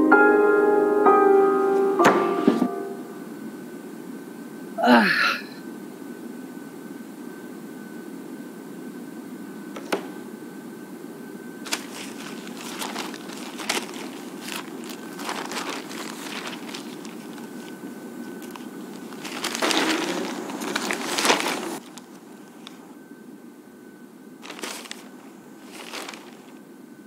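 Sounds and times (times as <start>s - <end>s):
newspaper pages rustling: 11.6s - 22.9s, 24.4s - 26.6s.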